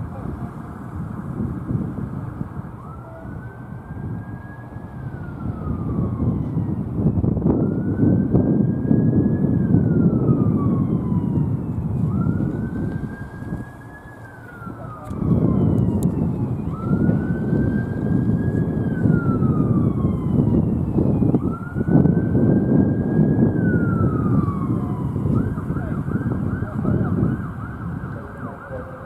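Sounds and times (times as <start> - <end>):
siren wailing: 0.0 - 29.0.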